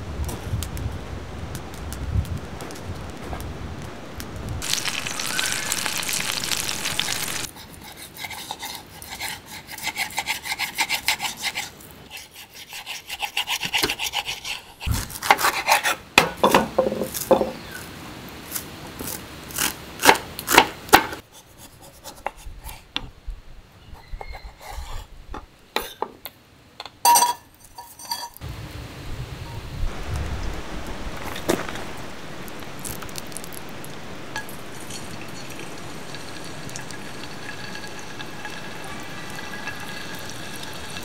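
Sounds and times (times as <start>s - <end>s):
wood fire crackling: 0.0s - 7.8s, 27.5s - 41.0s
knife sawing through fish: 7.6s - 16.0s.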